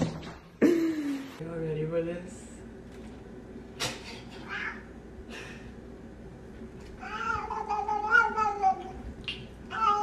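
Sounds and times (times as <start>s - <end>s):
cat meowing: 7.0s - 9.0s, 9.7s - 10.0s.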